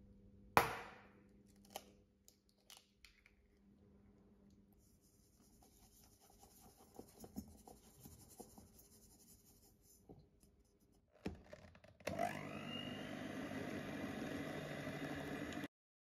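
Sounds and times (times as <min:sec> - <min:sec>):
hand mixer motor whine: 0:12.1 - 0:15.7.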